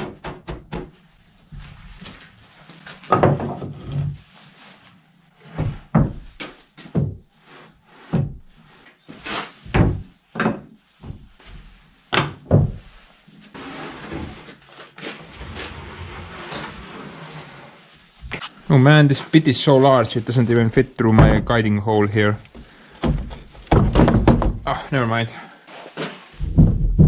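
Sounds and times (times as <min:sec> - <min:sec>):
scraping and handling: 0:12.8 - 0:21.7
wooden boards knocking: 0:22.6 - 0:24.8, 0:26.4 - 0:27.0.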